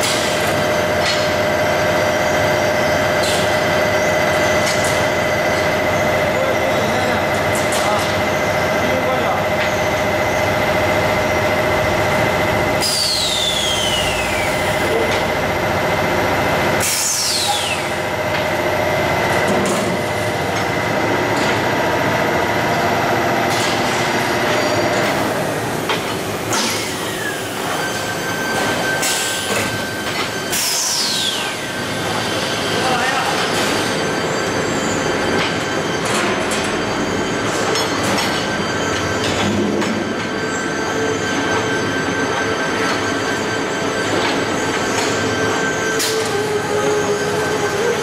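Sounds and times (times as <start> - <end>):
machinery humming: 0.0 - 48.0
high-pitched falling whine: 12.6 - 15.7, 26.5 - 48.0.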